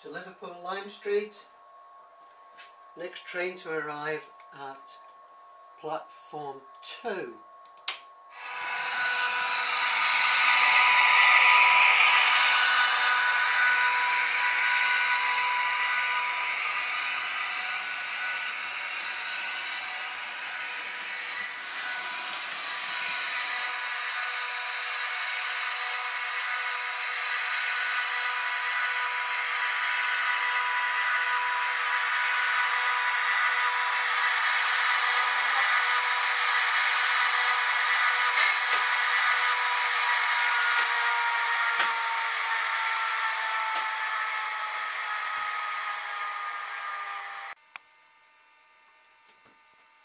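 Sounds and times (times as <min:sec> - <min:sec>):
model train whirring on track: 0:08.4 - 0:47.6
wheel and track rumble: 0:32.6 - 0:42.2.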